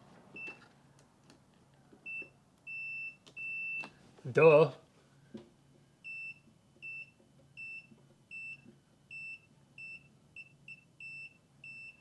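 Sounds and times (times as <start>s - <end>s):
multimeter high beeps: 6.1s - 12.0s.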